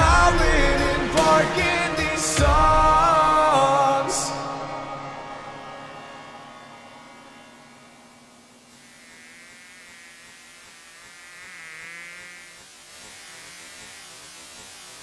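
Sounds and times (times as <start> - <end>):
faint hum and hiss: 7.4 - 15.0.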